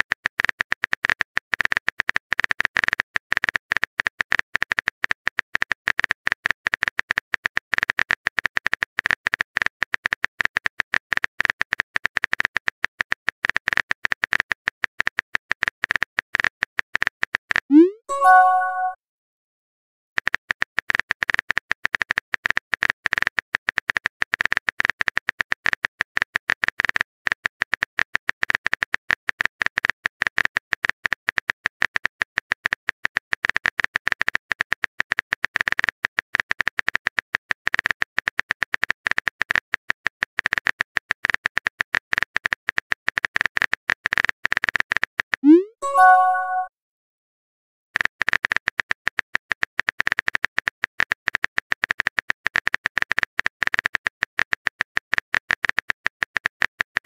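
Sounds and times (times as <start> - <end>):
message chime: 17.7 - 19.0, 45.4 - 46.7.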